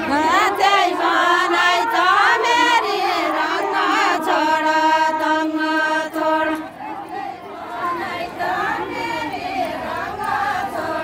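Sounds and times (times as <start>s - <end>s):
women singing together: 0.0s - 11.0s.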